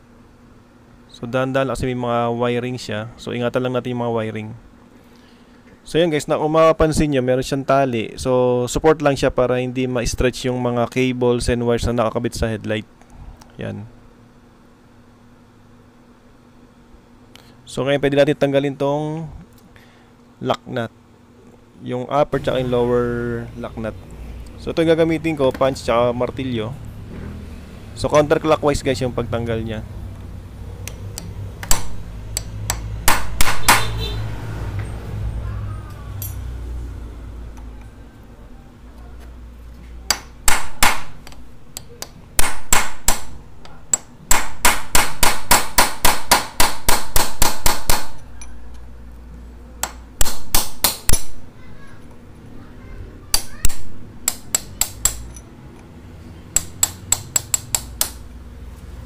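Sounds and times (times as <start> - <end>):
hammer tapping steel punch: 30.8 - 34.0, 36.2 - 36.5, 40.1 - 48.6, 49.8 - 51.4, 53.3 - 55.9, 56.5 - 58.2.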